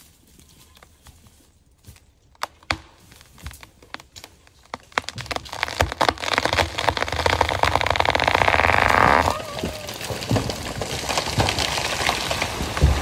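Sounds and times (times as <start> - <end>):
tree wood cracking and popping: 1.8 - 13.0.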